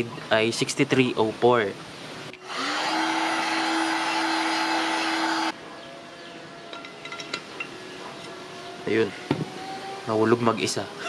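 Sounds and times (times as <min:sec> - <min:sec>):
heat gun fan humming: 0:02.4 - 0:05.6.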